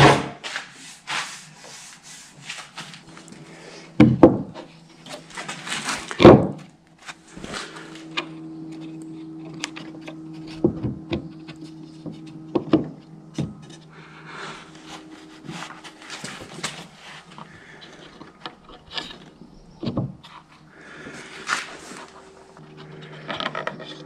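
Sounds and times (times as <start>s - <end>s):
steady low hum: 0.0s - 24.0s
wood pieces knocking: 4.0s - 6.7s.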